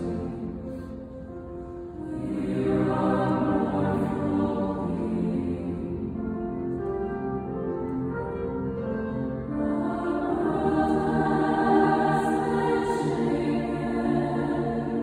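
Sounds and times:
mixed choir singing: 0.0 - 0.7, 1.9 - 6.6, 9.4 - 15.0.

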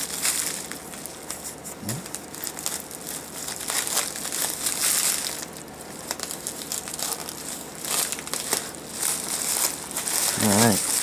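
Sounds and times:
plastic mailer crinkling: 0.0 - 11.0.

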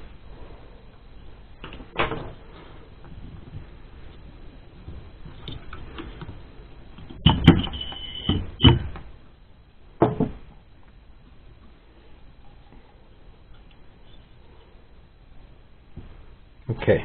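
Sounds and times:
sharp metal clunks: 7.2 - 9.0
motor knocking on wooden workbench: 7.2 - 9.1, 10.0 - 10.4
high squeak of parts rubbing: 7.4 - 8.5.

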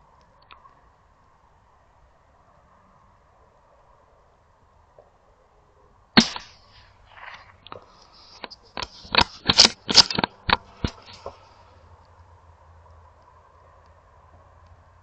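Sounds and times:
rifle shot: 6.2 - 7.3
rifle handling clicks and knocks: 6.2 - 11.4.

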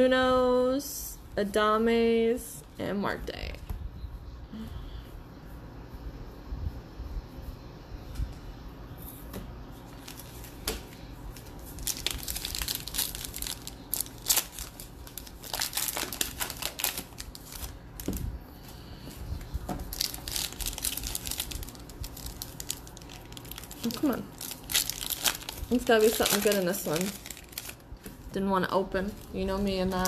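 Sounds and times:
foil wrapper crinkling and tearing: 9.9 - 10.8, 11.4 - 18.2, 19.9 - 27.9.

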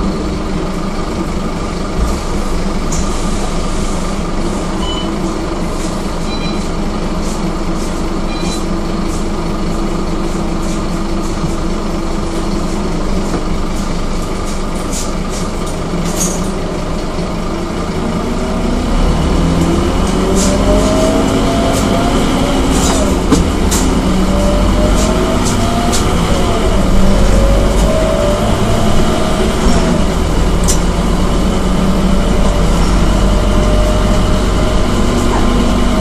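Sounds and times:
bus diesel engine: 0.0 - 36.0
short faint beeps: 4.8 - 5.2, 6.3 - 6.7.

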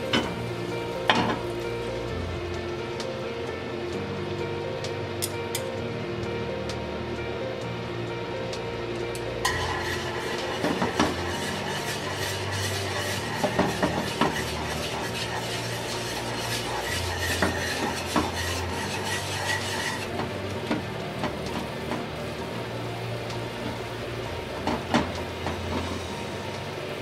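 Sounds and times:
utensils scraping a pan: 9.4 - 22.0
eggs sizzling in a frying pan: 9.4 - 26.4.

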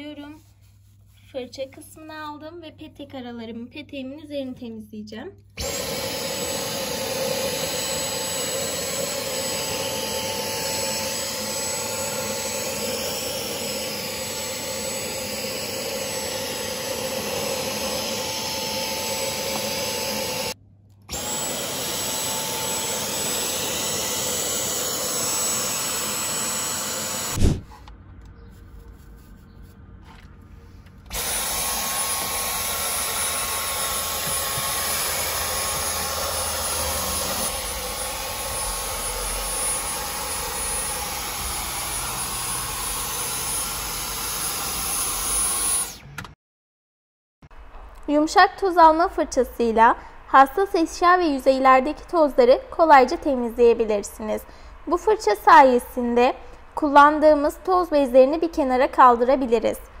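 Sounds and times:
vacuum motor high whine: 5.6 - 27.6, 31.1 - 46.2.

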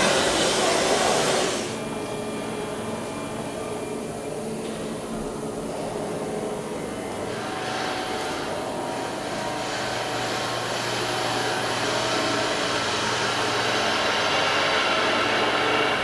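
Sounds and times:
fan blower whoosh: 0.0 - 2.4, 7.1 - 16.0.

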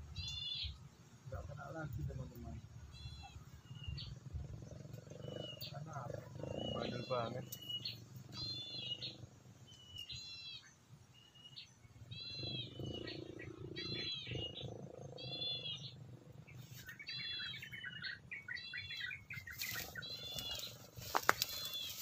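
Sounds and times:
bird chattering: 2.9 - 9.2, 12.1 - 22.0
bird giving nasal calls: 12.1 - 16.0, 16.8 - 22.0.

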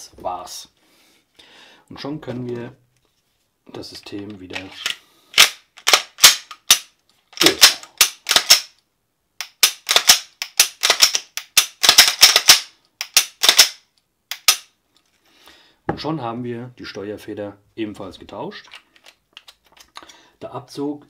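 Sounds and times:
pistol parts clicking and clacking: 4.2 - 8.8, 9.4 - 14.8, 18.6 - 20.0.

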